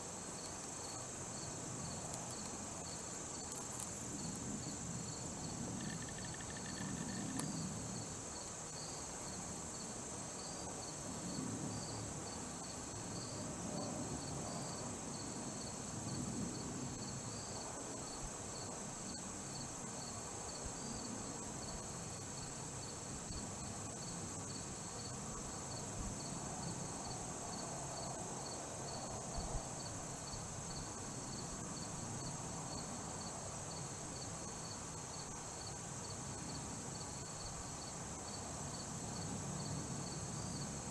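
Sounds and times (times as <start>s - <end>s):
insects droning: 0.0s - 40.9s
repeating insect chirp: 0.4s - 7.7s.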